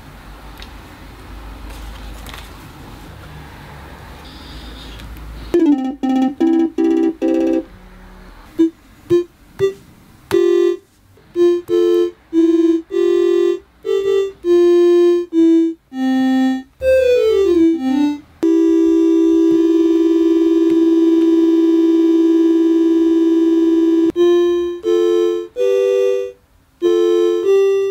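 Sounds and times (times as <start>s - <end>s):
electronic keyboard notes: 5.5s - 7.7s, 8.6s - 27.9s.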